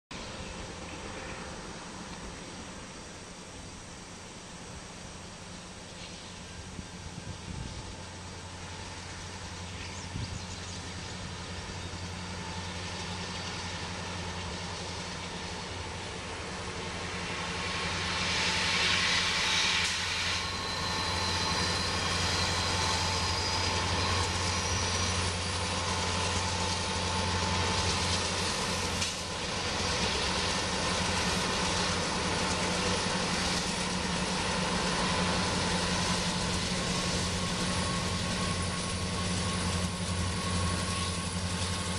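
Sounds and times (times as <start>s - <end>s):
diesel locomotive engine drone: 0.1s - 41.9s
high hiss: 11.1s - 41.9s.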